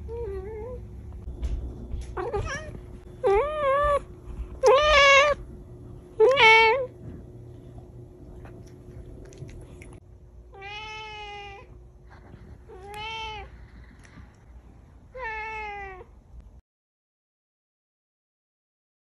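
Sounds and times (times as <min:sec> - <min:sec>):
cat meowing: 0:02.2 - 0:05.4, 0:06.2 - 0:06.9, 0:10.5 - 0:11.7, 0:15.1 - 0:16.1.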